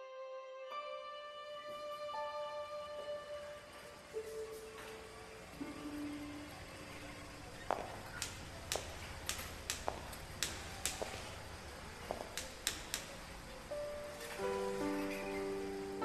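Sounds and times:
footsteps on marble floor: 4.1s - 15.4s
cane tapping on marble floor: 7.6s - 11.4s, 12.0s - 13.2s.

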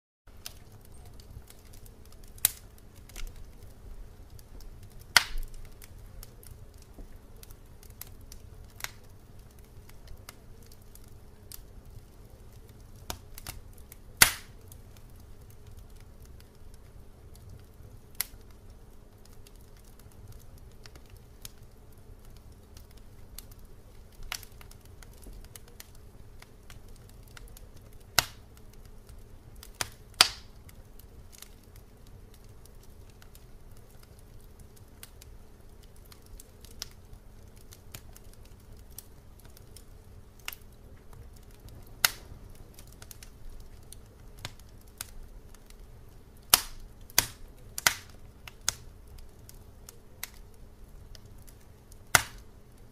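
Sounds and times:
steady low hum: 0.3s - 52.9s
sharp clicks and pops: 46.5s - 48.8s.

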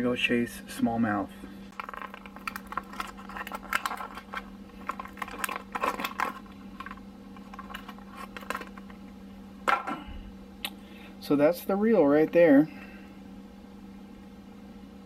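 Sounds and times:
steady low hum: 0.0s - 15.0s
plastic packaging crackling: 1.7s - 9.0s.

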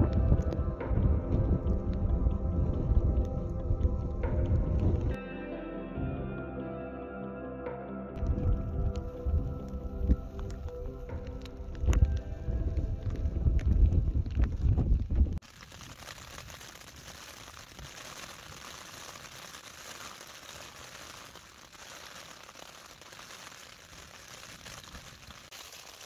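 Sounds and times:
background music: 0.0s - 14.4s
rain pattering on tent: 8.2s - 26.0s.

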